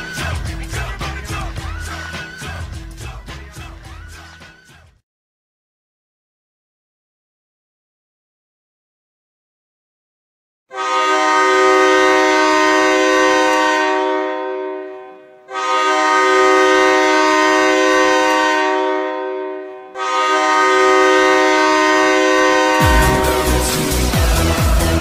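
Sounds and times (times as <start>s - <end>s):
goal horn blasts: 10.7s - 24.2s.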